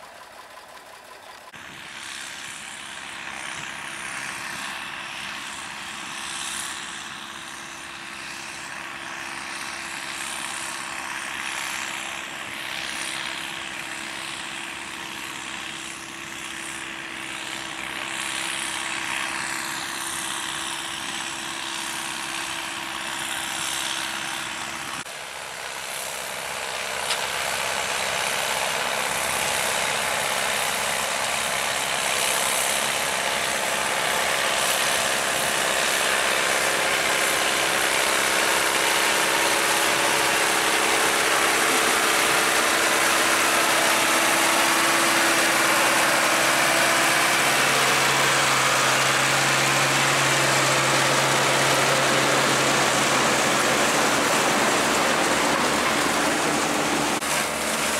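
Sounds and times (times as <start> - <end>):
tractor engine running: 0.0 - 57.9
broad rushing noise: 28.7 - 57.9.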